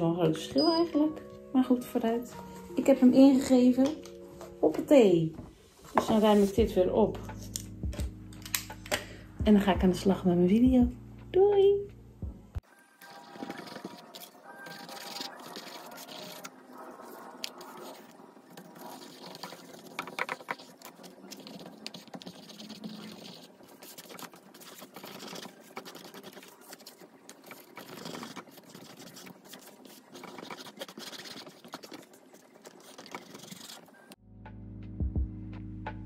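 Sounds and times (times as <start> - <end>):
paintbrush brushing over canvas: 5.7 - 6.6, 13.0 - 34.2
paper rustling and scratching: 13.0 - 34.2.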